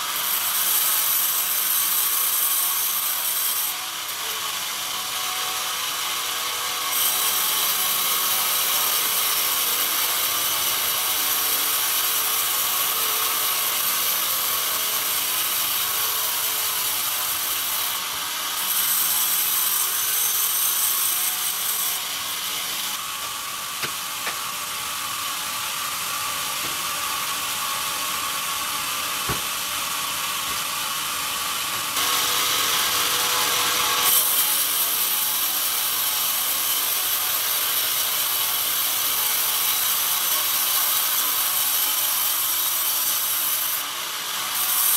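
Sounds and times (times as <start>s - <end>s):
band saw blade hissing through wood: 0.0s - 44.9s.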